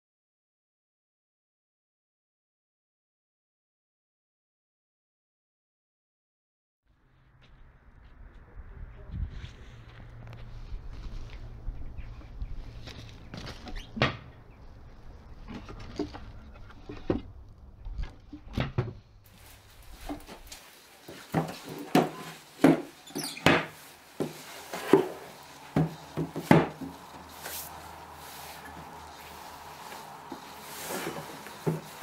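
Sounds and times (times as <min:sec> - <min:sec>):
wind rumble on microphone: 0:07.2 - 0:13.3
wooden cabinet knocks and thuds: 0:25.8 - 0:26.9.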